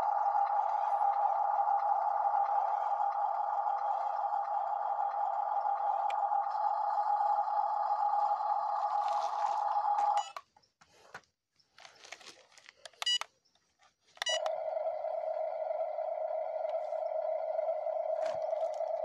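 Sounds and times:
buzzing simulated engine: 0.0s - 10.2s, 14.2s - 19.0s
low engine drone: 0.0s - 10.3s, 14.2s - 19.0s
short electronic beeps: 14.2s - 14.5s.

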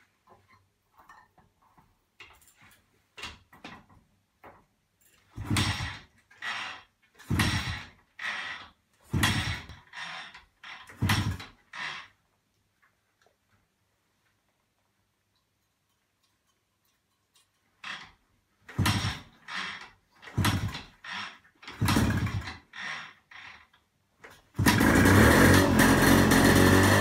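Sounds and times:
motorcycle kick-start engine spinning: 5.2s - 12.1s, 17.8s - 27.0s.

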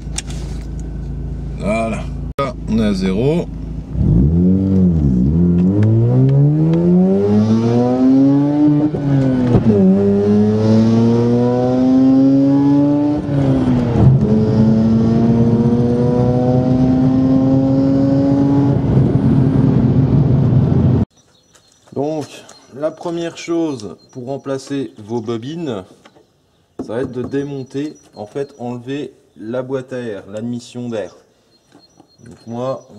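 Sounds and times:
rotary engine accelerating hard: 3.8s - 21.1s.

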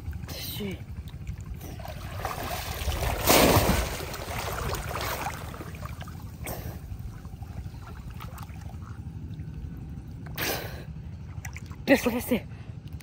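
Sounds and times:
person wading through water: 0.0s - 13.0s
loud water splash: 1.8s - 6.2s.

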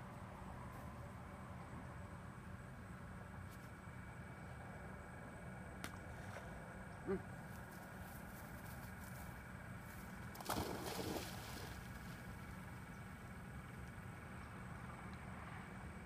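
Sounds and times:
dog splashing into water: 10.4s - 12.2s.

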